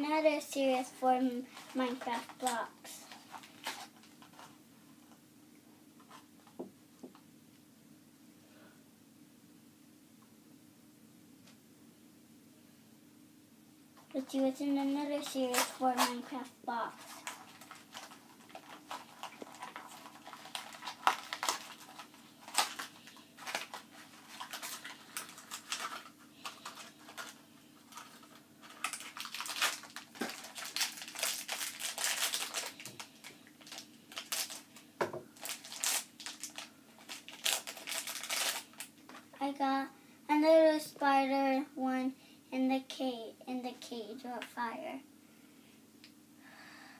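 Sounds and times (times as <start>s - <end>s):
wrapper crinkling and tearing: 1.5s - 4.5s, 14.9s - 39.4s.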